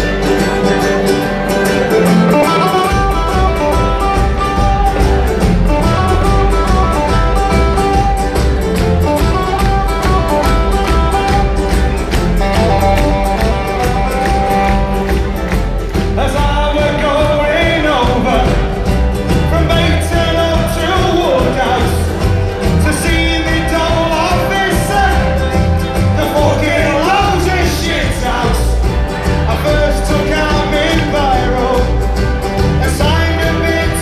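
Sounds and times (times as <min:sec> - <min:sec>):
live band playing loudly: 0:00.0 - 0:34.0
man singing: 0:16.0 - 0:34.0.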